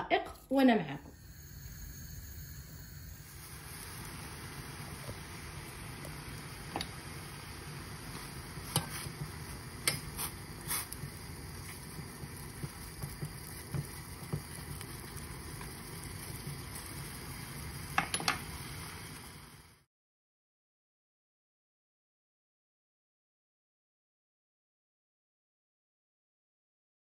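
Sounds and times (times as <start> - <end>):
water boiling in saucepan: 0.8 - 19.9.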